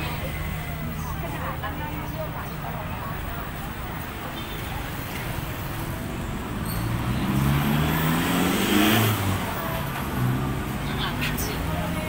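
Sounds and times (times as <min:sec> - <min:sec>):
vehicle engine passing by: 0:05.4 - 0:12.0.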